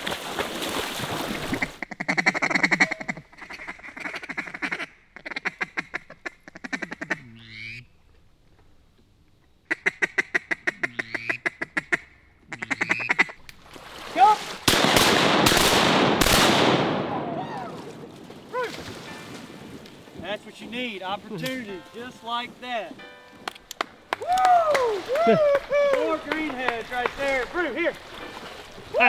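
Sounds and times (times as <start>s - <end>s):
duck calls quacking: 1.5s - 7.9s, 9.7s - 13.4s.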